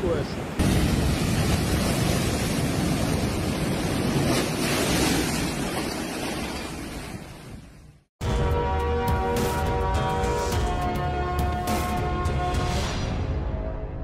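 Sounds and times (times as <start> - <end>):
heavy waves crashing: 0.0 - 8.1.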